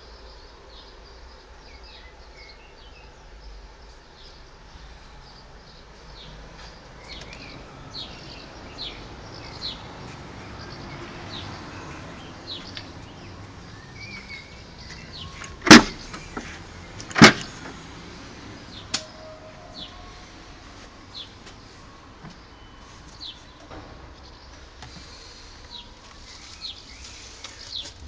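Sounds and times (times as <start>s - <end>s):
birds chirping faintly: 0.0s - 28.0s
car door latch clunks: 15.4s - 16.3s, 17.0s - 17.8s.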